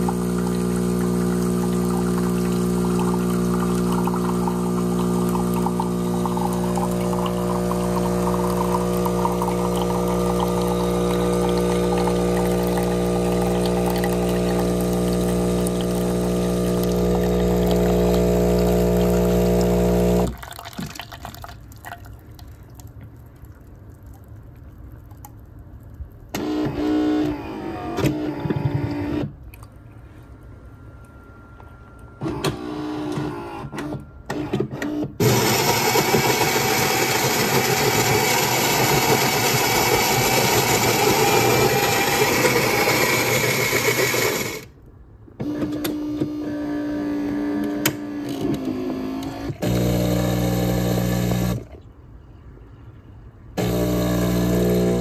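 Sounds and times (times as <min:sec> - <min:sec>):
coffee grinder running: 0:00.0 - 0:20.4, 0:35.2 - 0:44.7, 0:49.6 - 0:51.6, 0:53.6 - 0:55.0
espresso pump buzzing: 0:00.0 - 0:20.4, 0:35.2 - 0:44.7, 0:45.4 - 0:51.7, 0:53.6 - 0:55.0.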